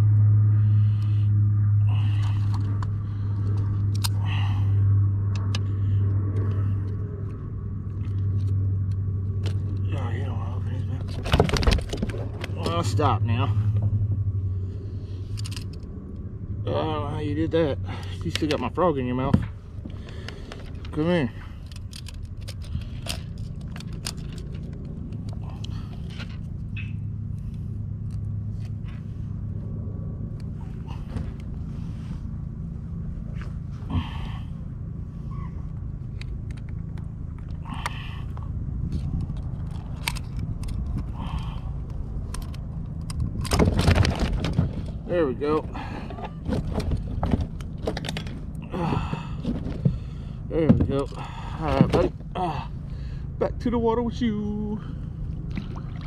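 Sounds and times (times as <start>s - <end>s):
low hum: 0.0s - 56.0s
low rumble: 0.0s - 56.0s
clicks and rattles of handling fish: 11.0s - 12.9s, 21.6s - 26.5s, 38.9s - 48.6s.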